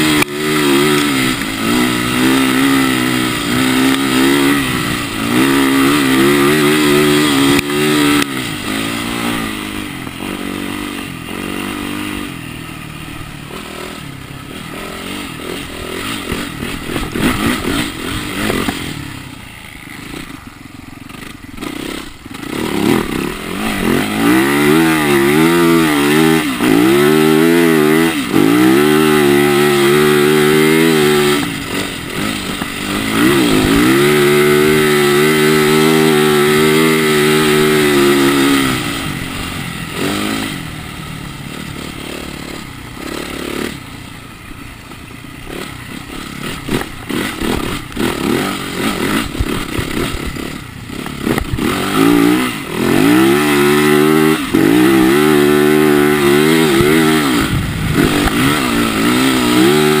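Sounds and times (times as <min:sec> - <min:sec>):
motorcycle engine pulling hard: 0:00.0 - 1:00.0
engine knocks and clatter: 0:13.4 - 1:00.0.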